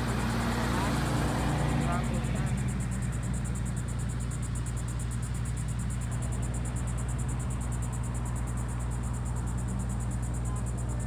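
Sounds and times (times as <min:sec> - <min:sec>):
insect chorus pulsing: 0:00.0 - 0:11.0
low engine hum: 0:00.0 - 0:11.0.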